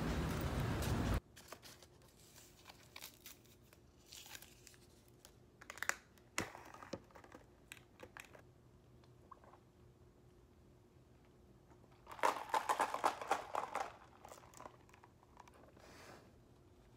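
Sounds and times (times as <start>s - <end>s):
paper wrapper crinkling and tearing: 1.3s - 8.4s.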